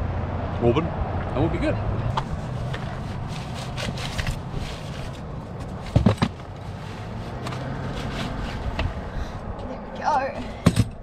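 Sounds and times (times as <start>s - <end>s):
camp chair clicks and scrapes: 2.1s - 9.0s.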